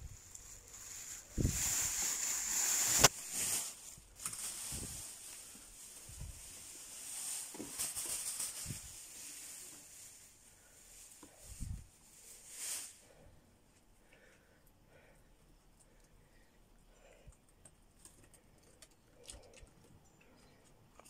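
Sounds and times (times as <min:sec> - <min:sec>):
rustling grass and wood shavings: 0:00.0 - 0:13.3.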